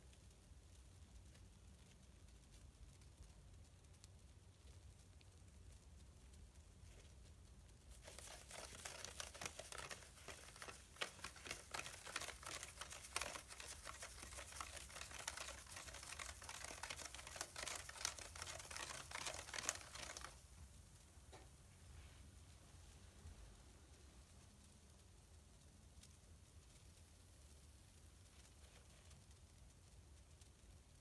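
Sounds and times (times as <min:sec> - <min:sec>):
bath bomb fizzing: 0:06.3 - 0:20.4.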